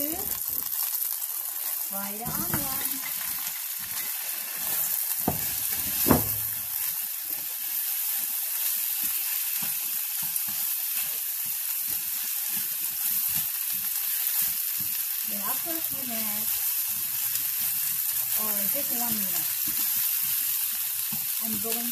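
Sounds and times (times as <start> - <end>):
onions sizzling in oil: 0.0 - 21.9
knocks on pan: 5.2 - 6.6.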